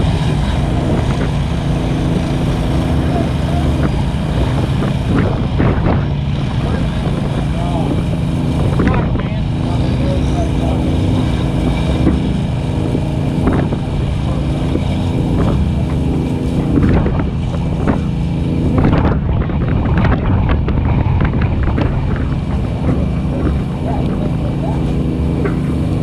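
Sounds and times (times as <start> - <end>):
truck engine running: 0.0 - 26.0
truck knocking and rattling: 0.0 - 26.0
wind on microphone: 0.0 - 26.0.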